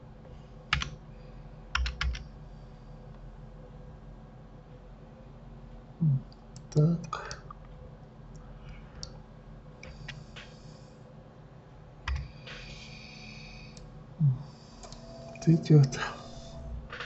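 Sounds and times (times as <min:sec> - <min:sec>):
faint steady hum: 0:00.0 - 0:17.0
keyboard keys clicking: 0:01.7 - 0:02.2, 0:12.0 - 0:12.3.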